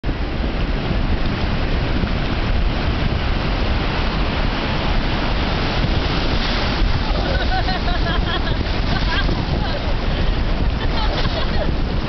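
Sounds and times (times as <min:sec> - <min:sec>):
wind buffeting microphone: 0:00.0 - 0:12.0
ocean surf washing in: 0:00.1 - 0:12.0.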